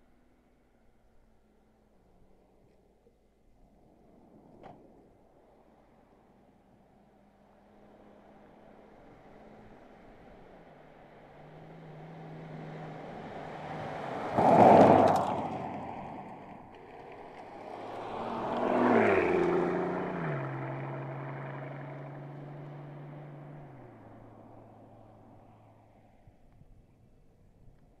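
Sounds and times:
car engine driving past: 5.5 - 26.6.

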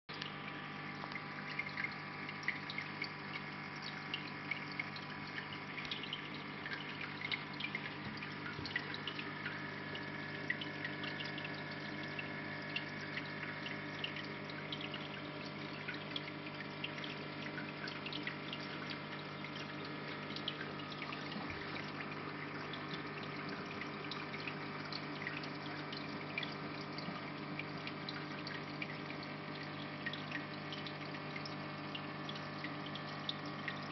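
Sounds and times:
small ticks: 0.1 - 21.8
pump hum: 0.1 - 33.9
trickling splashing water: 0.1 - 33.9.

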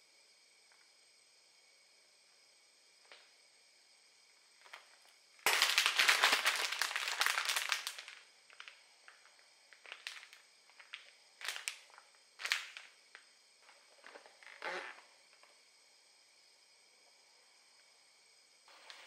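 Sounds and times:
plastic packaging crinkling: 4.6 - 13.2.

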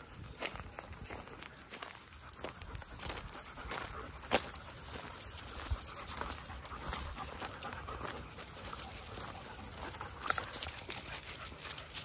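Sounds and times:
footsteps crunching on dry leaves: 0.0 - 12.0
dog panting: 2.3 - 12.0.

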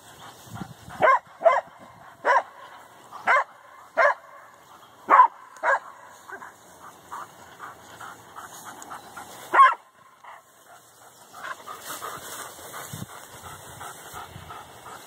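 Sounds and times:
dog barking: 1.0 - 6.5, 9.5 - 10.5.

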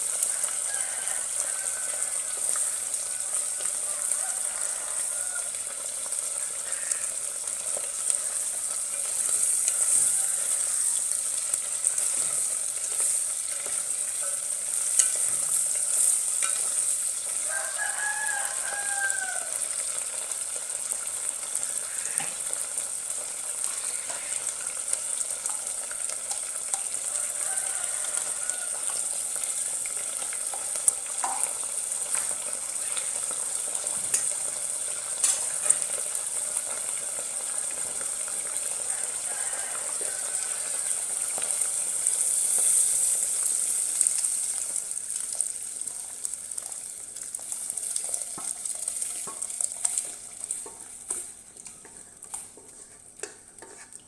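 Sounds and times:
shrimp sizzling in hot oil: 0.0 - 54.0
wooden spatulas knocking and scraping: 51.9 - 54.0.

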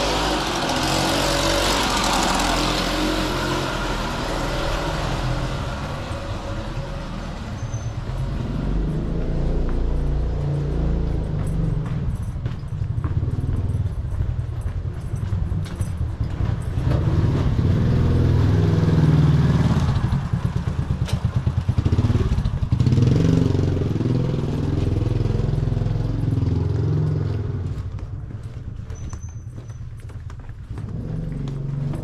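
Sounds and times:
motor scooter engine running: 0.0 - 6.5, 8.3 - 32.0.

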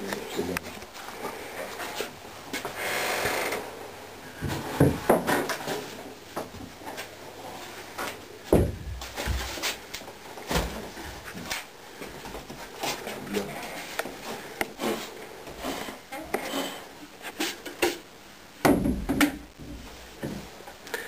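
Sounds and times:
knocks and thuds of people moving: 4.4 - 7.1, 8.0 - 9.8, 10.4 - 15.7, 17.3 - 20.6.

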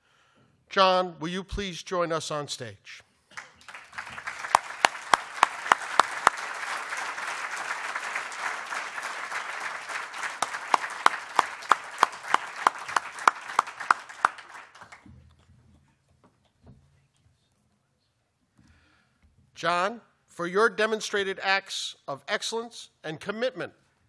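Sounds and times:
audience applauding: 3.3 - 15.0
person clapping close by: 3.4 - 15.0.

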